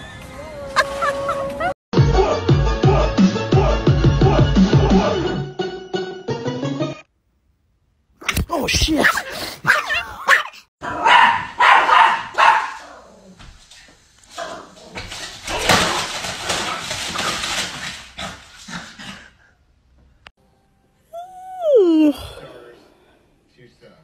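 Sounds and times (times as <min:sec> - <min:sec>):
dog barking: 0:09.6 - 0:13.0.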